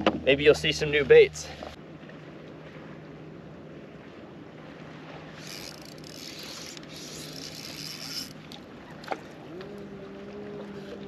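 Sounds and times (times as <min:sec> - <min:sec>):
fishing reel cranking: 0:05.4 - 0:08.4
electric trolling motor whine: 0:05.4 - 0:08.5.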